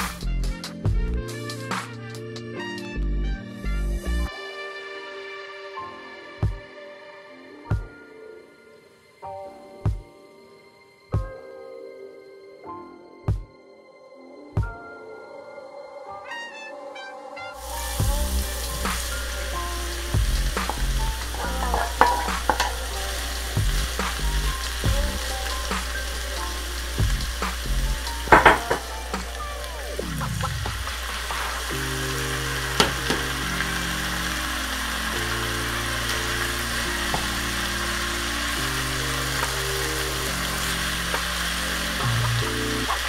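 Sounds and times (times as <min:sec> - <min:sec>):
slow chord music: 0:00.0 - 0:43.0
vegetables sizzling in a pan: 0:17.6 - 0:43.0
spatula scraping and knocking pan: 0:20.1 - 0:23.0, 0:28.2 - 0:29.3.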